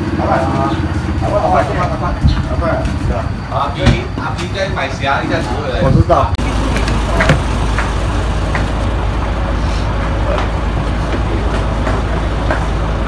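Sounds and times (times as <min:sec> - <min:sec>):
boat engine idling: 0:06.4 - 0:13.0.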